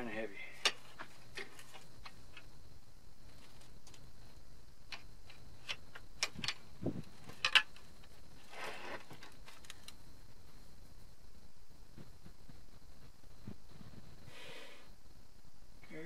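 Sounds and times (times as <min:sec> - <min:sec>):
metal parts clicking and knocking: 0:05.2 - 0:06.6, 0:07.3 - 0:07.8.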